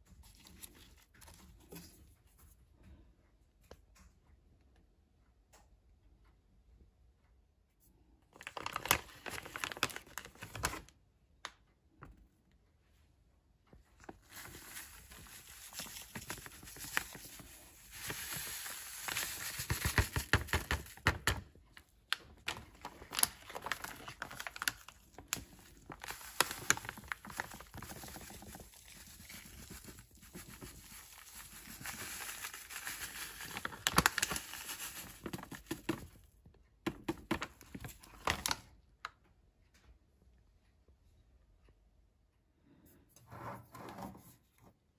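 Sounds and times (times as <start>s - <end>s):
plastic packet crinkling: 8.4s - 10.9s, 14.0s - 21.5s, 22.1s - 36.2s, 36.9s - 38.7s.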